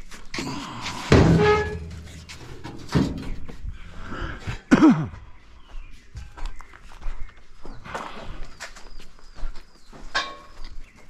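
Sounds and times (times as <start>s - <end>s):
objects knocking and thudding: 1.1s - 3.8s.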